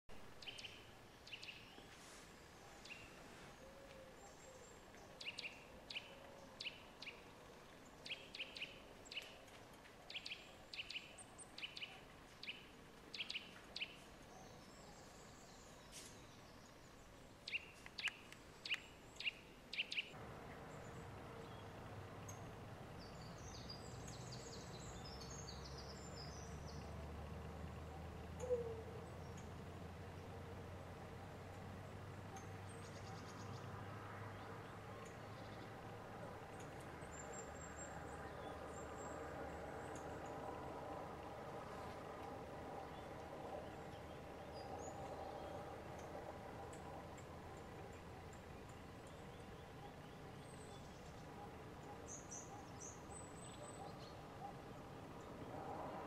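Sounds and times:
bird clicking calls: 17.5 - 20.1.

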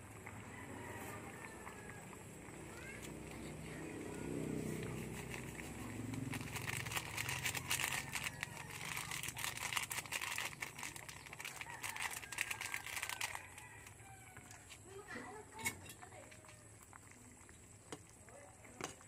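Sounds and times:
plastic sachet crinkling: 4.7 - 14.6.

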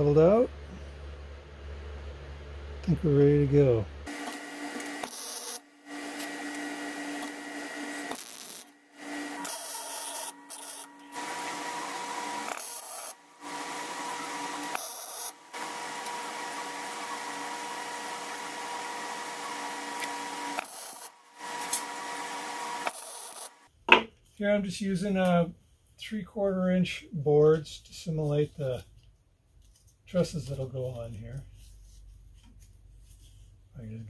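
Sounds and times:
faint welder hum: 0.0 - 23.7
welder arc crackling: 4.0 - 23.7.

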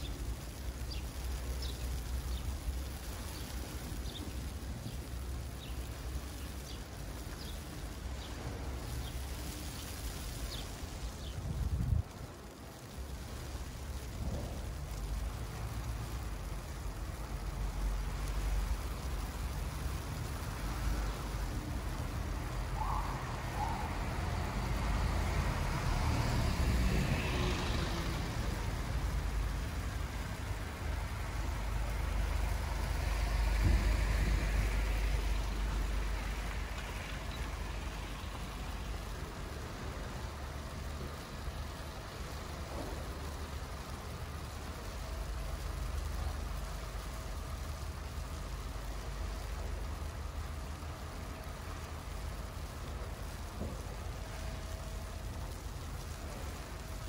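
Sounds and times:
motor vehicles driving past: 12.5 - 54.5.

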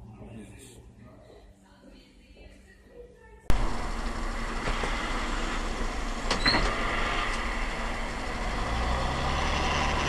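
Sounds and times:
bus running and road noise: 3.5 - 10.0
brief squeak: 6.3 - 6.8.

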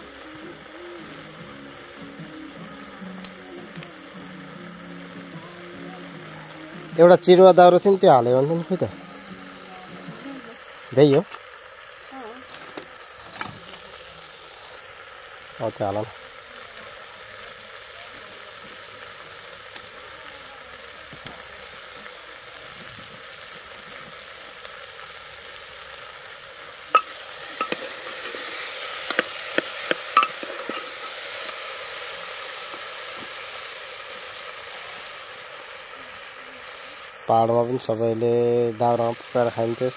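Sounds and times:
curry sizzling in pot: 0.0 - 39.9
sharp clicks and pops: 27.0 - 31.6.

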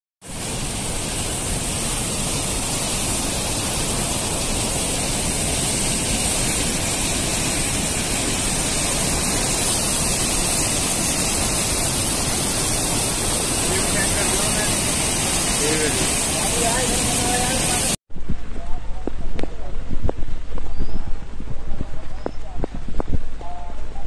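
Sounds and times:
floodwater rushing: 0.2 - 18.0.

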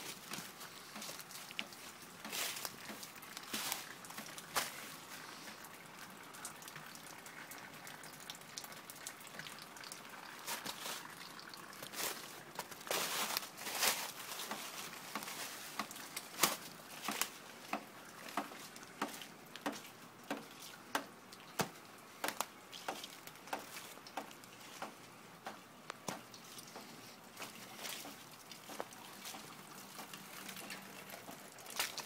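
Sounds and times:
footsteps on snow and leaves: 0.0 - 5.3, 11.9 - 17.4
rustling of leaves and brush: 0.0 - 7.0, 9.0 - 32.0.

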